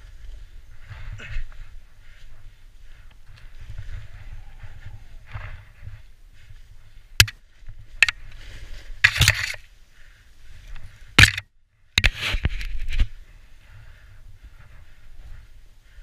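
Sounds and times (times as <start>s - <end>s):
snowboard scrapes and knocks: 12.0s - 13.1s.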